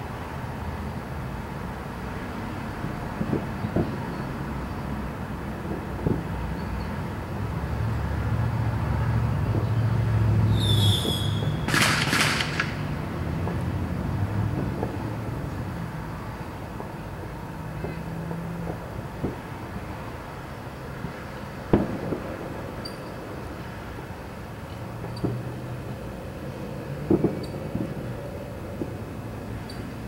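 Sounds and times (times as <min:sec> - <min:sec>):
vehicle passing rumble: 0:00.1 - 0:30.0
distant fireworks popping: 0:03.2 - 0:07.4, 0:09.1 - 0:30.0
high squeal: 0:10.5 - 0:11.9.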